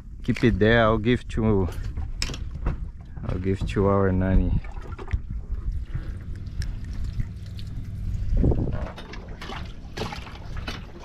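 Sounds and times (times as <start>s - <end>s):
steady low rumble: 0.0s - 11.0s
small knocks on boat: 1.8s - 4.0s
water trickling and splashing: 4.2s - 11.0s.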